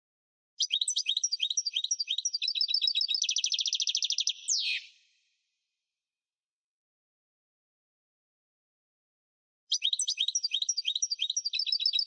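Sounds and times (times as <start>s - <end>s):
goldfinch singing trill: 0.6s - 5.0s, 9.7s - 12.0s.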